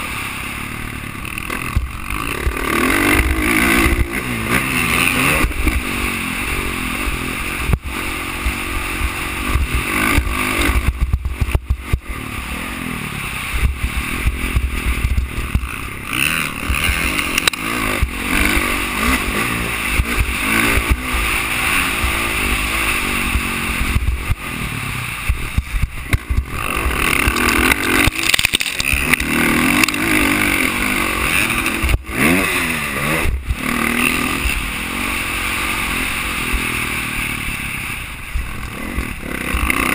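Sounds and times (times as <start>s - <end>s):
dirt bike engine revving: 0.0s - 39.9s
steady rushing noise: 0.0s - 39.9s.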